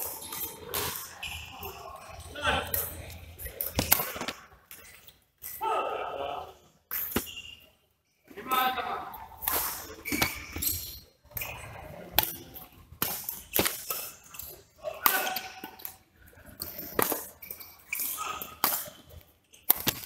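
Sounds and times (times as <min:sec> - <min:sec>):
rackets striking shuttlecock: 0:13.0 - 0:16.0, 0:16.6 - 0:20.0.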